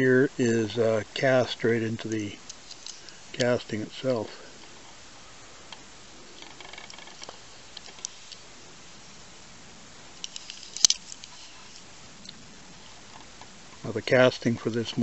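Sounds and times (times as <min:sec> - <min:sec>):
toy car handling clicks: 0:10.2 - 0:11.4.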